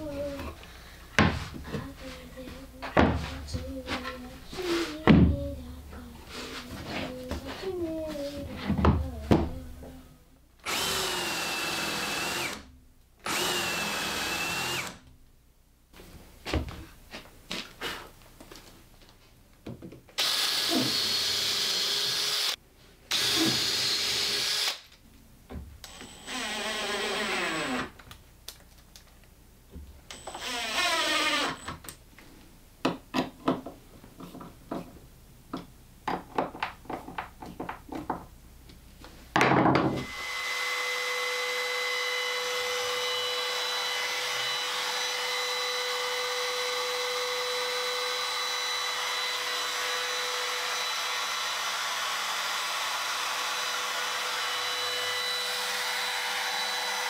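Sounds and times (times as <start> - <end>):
cordless drill driving screws: 10.6 - 12.6, 13.2 - 15.0, 20.2 - 24.8, 25.8 - 27.9, 30.1 - 31.7, 40.0 - 57.0
router whining: 10.6 - 15.0, 20.2 - 24.8, 25.8 - 28.0, 30.1 - 31.8, 39.9 - 57.0.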